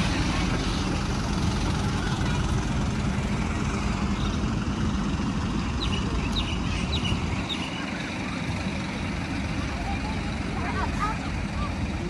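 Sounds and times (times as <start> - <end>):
bus engine rumble: 0.0 - 12.0
bird chirping: 5.8 - 8.1.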